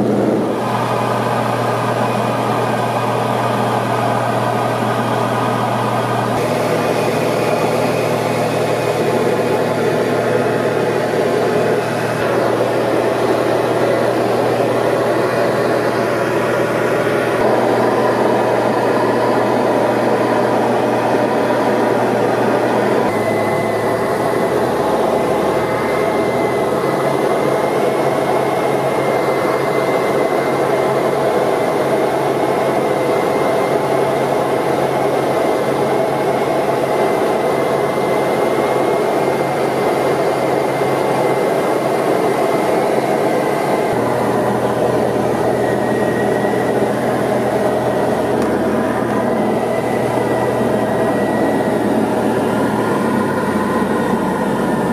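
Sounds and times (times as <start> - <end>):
airflow noise: 0.0 - 33.0, 41.6 - 54.9
aircraft engine and propeller hum: 0.0 - 54.9.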